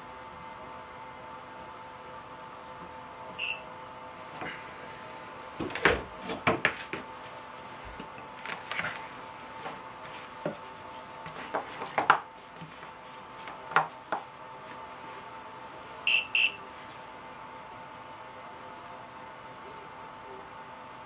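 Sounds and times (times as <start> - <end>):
short high electronic beeps: 3.3 - 3.7, 16.1 - 16.6.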